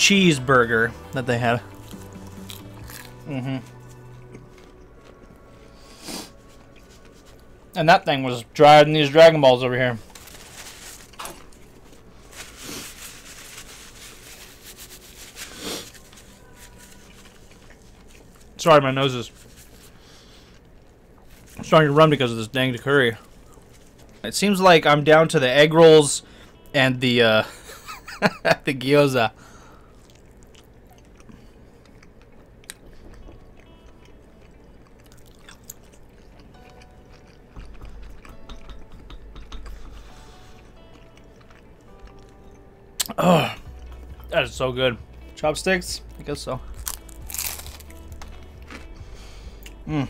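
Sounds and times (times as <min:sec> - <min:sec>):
person chewing food: 0:01.6 - 0:07.8, 0:14.4 - 0:18.6, 0:29.9 - 0:44.3, 0:46.7 - 0:50.0
paper towel rustling: 0:09.9 - 0:20.0.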